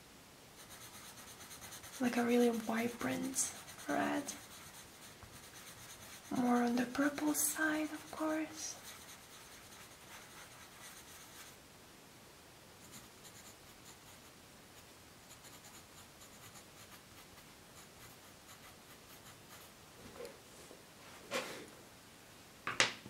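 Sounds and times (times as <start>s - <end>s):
pencil scratching on paper: 0.6s - 11.6s, 12.8s - 14.3s, 15.2s - 19.7s.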